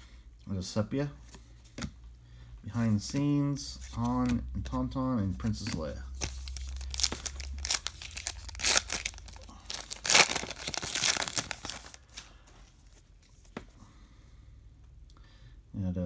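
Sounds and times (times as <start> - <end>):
foil wrapper tearing and crinkling: 6.2 - 12.1.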